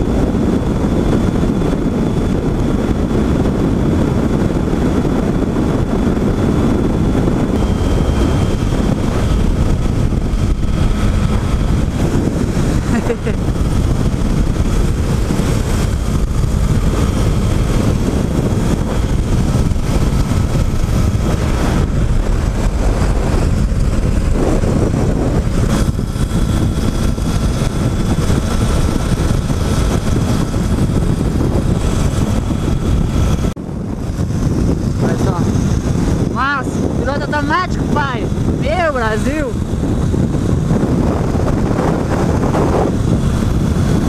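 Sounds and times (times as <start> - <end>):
motorcycle engine: 0.0 - 44.0
road noise: 0.0 - 44.0
wind rush on microphone: 0.0 - 44.0.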